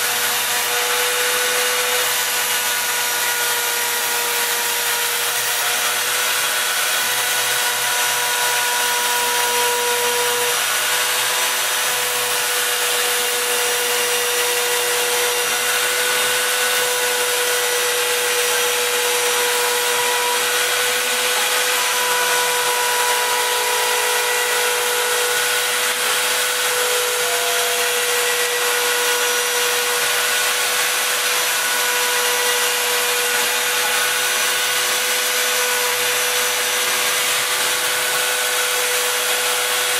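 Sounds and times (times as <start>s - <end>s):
router spindle cutting: 0.0s - 39.9s.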